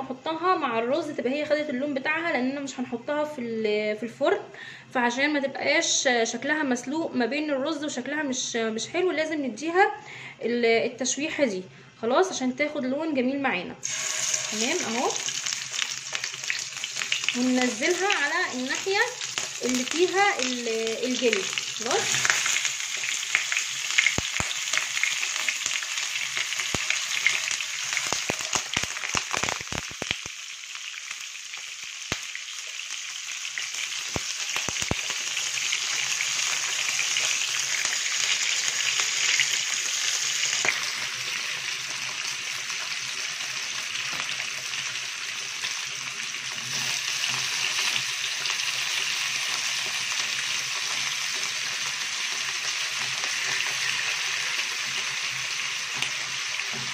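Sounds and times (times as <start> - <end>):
chicken sizzling in hot oil: 13.8 - 56.9.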